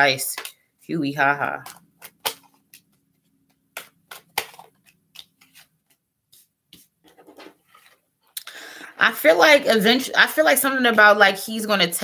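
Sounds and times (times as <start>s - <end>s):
cards being shuffled: 1.5s - 8.0s.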